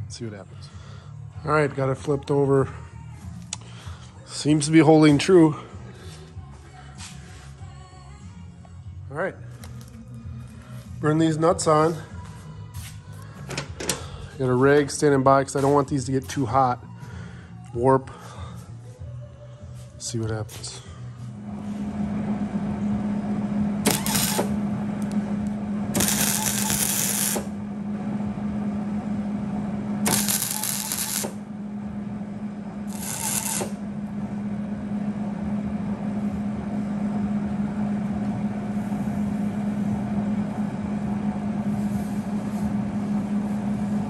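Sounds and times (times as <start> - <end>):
steady low hum: 0.0 - 44.0
welding arc crackling: 23.8 - 25.2, 25.9 - 27.6, 30.0 - 31.4, 32.9 - 33.8.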